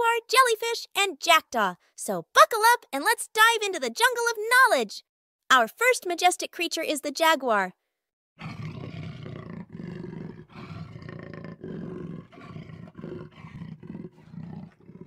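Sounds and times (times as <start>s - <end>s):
big cat growling and roaring: 8.4s - 15.0s.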